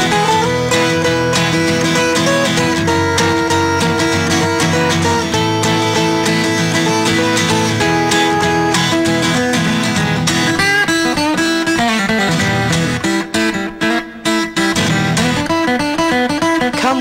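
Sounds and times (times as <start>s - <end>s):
instrumental guitar music: 0.0s - 17.0s.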